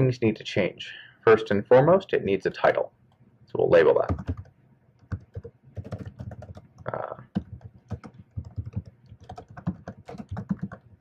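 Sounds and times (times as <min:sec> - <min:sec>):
typing on computer keyboard: 0:04.0 - 0:11.0.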